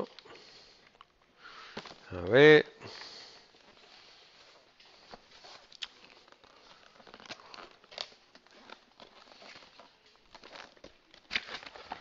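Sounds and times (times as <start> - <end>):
cardboard rustling and scraping: 3.6 - 12.0.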